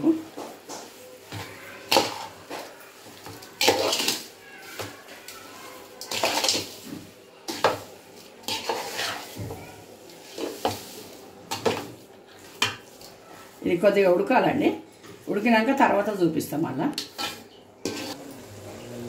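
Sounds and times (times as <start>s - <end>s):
metal spatula scraping a pan: 1.2s - 9.4s, 17.0s - 18.2s.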